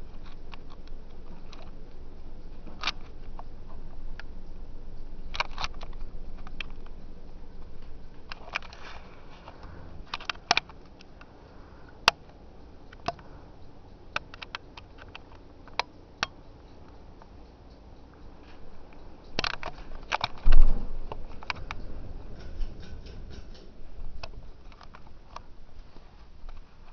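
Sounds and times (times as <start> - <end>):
ceiling fan humming: 0.0 - 26.9
sharp clicks and ticks: 12.0 - 25.5
loud low thump: 20.4 - 21.0.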